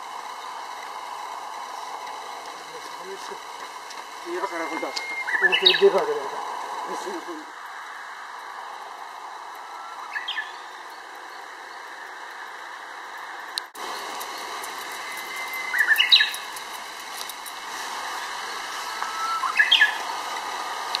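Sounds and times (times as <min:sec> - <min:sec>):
bird singing whistled song: 0:04.3 - 0:06.0, 0:09.6 - 0:11.9, 0:13.9 - 0:16.8, 0:18.8 - 0:20.1.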